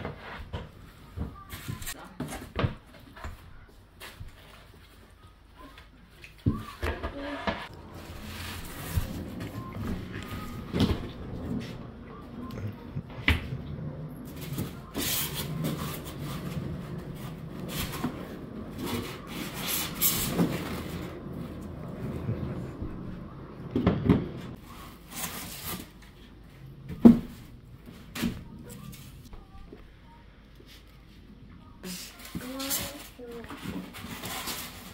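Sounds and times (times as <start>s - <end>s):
boards sliding and rubbing: 6.9s - 12.4s, 13.0s - 25.9s.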